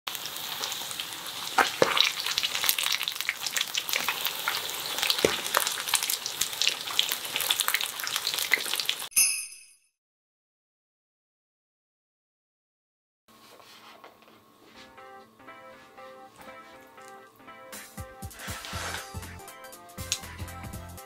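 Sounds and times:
chicken sizzling in hot oil: 0.1s - 9.1s, 17.8s - 19.4s.

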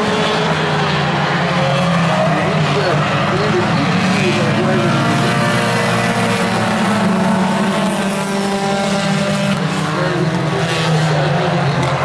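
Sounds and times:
race car engines passing: 0.0s - 12.0s.

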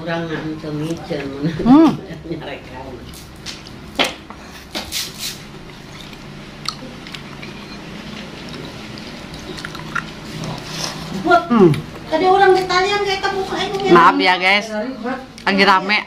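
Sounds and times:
lips smacking and sucking: 9.3s - 11.1s.

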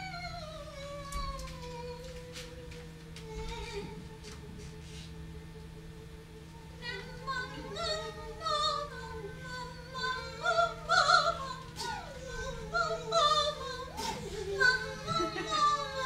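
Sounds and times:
faint background tones: 0.0s - 16.0s
operatic singing: 6.8s - 16.0s.

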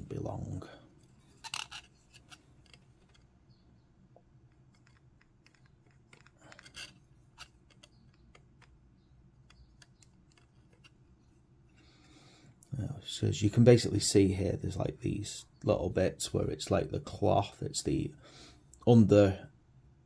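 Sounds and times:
fingers handling plastic base: 4.2s - 11.3s.

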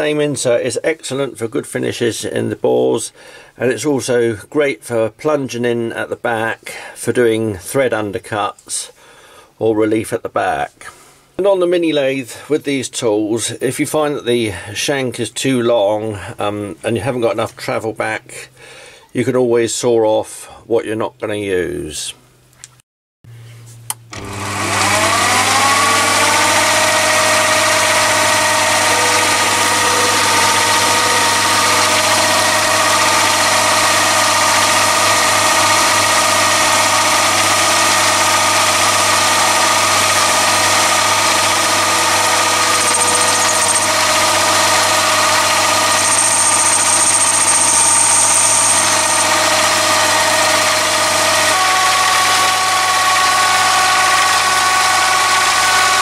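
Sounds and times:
boring bar cutting steel: 24.1s - 56.0s
lathe motor running: 24.1s - 56.0s.

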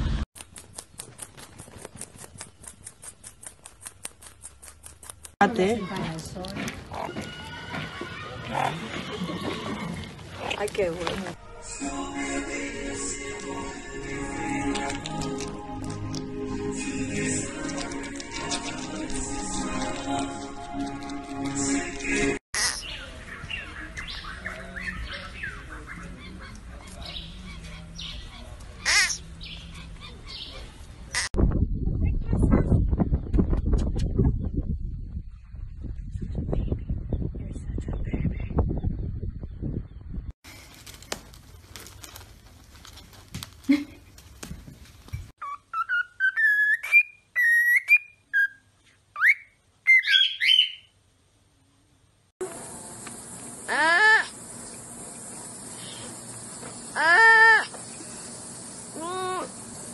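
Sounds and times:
cockatiel whistling: 45.4s - 50.9s
high-pitched animal chirps: 45.4s - 50.9s.

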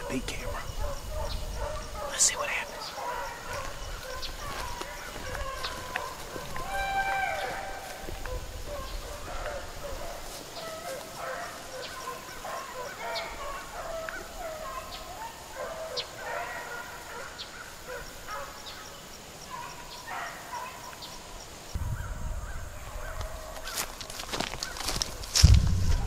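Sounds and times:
hounds baying: 0.0s - 21.2s, 22.0s - 25.4s
low rumble: 25.4s - 26.0s.

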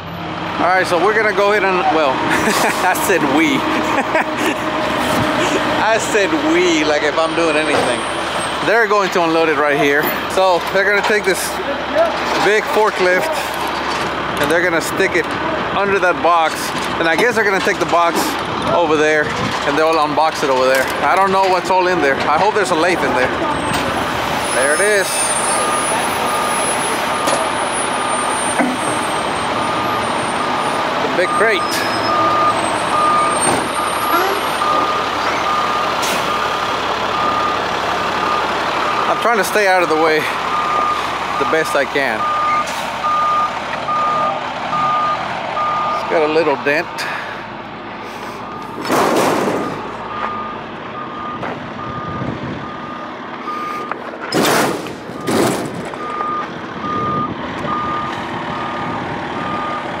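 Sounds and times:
forklift engine under load: 0.0s - 60.0s
forklift backup alarm beeping: 23.2s - 47.4s, 48.3s - 48.9s, 49.6s - 54.1s, 55.1s - 60.0s.

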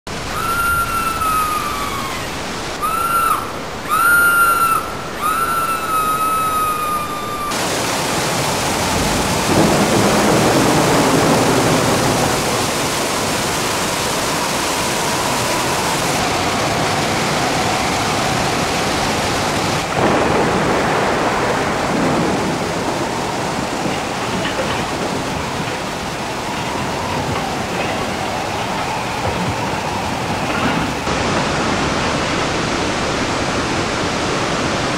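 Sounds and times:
waterfall roaring: 0.0s - 34.9s
high whistled call falling in pitch: 0.1s - 7.7s.

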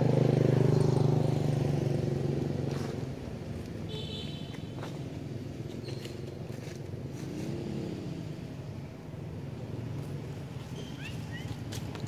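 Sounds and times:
vehicle engine hum: 0.0s - 3.9s.

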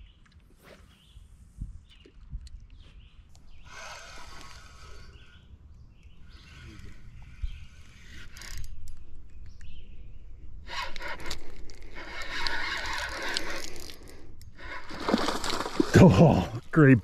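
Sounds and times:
spinning reel cranked fast: 10.7s - 15.0s.

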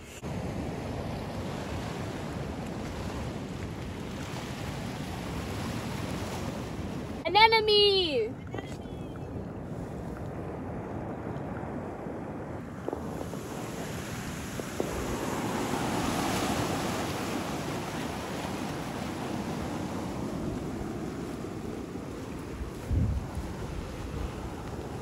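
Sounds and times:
surf washing over rocks: 0.0s - 8.5s, 9.3s - 25.0s
wind buffeting the microphone: 7.8s - 25.0s.

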